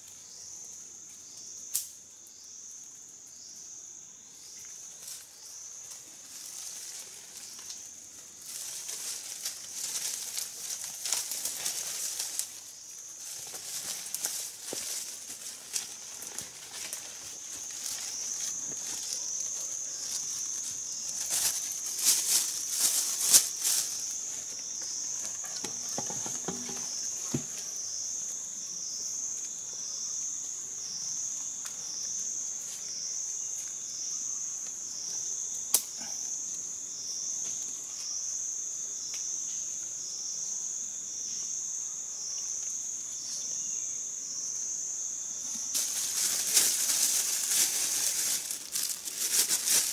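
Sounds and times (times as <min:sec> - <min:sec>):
insects droning: 0:00.0 - 0:49.9
undergrowth rustling and cracking: 0:05.0 - 0:27.5, 0:45.5 - 0:49.9.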